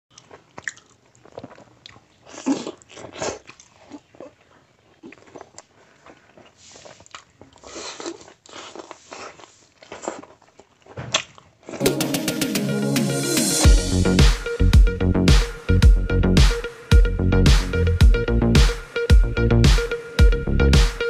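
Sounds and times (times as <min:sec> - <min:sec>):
man chewing food: 0:00.1 - 0:11.8
wet mouth sounds: 0:00.1 - 0:11.8.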